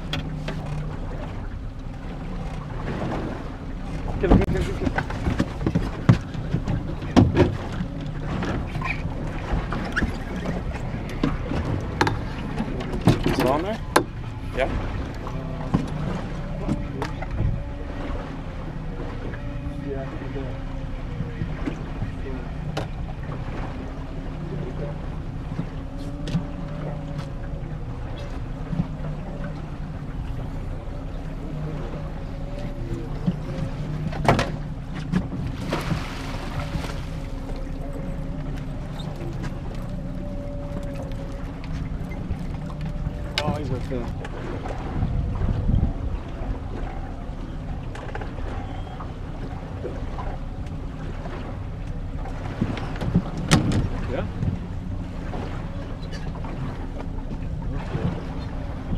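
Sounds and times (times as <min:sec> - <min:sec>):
outboard motor running: 0:00.0 - 0:58.9
water against hull: 0:00.0 - 0:58.9
wind: 0:00.0 - 0:58.9
wind noise on microphone: 0:44.7 - 0:46.8.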